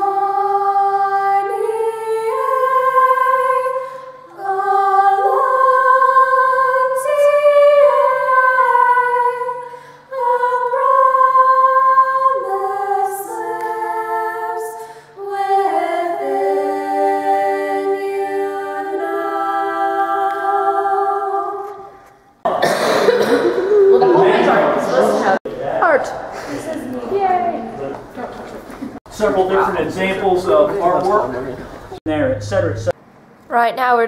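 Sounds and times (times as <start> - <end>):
women singing a cappella: 0.0 - 22.0.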